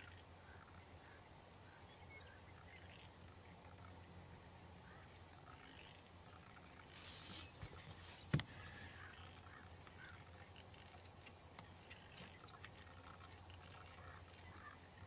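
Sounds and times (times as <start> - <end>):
distant bird calls: 0.0 - 15.0
brief hiss: 7.0 - 9.0.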